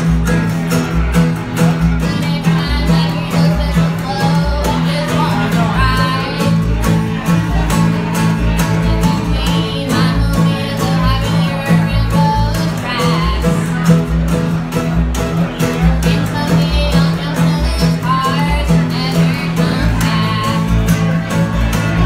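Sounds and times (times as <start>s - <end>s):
acoustic guitar strumming: 0.0s - 22.0s
mandolin: 0.0s - 22.0s
upright bass plucking: 0.0s - 22.0s
woman singing: 2.0s - 6.8s, 8.6s - 13.8s, 15.9s - 21.1s.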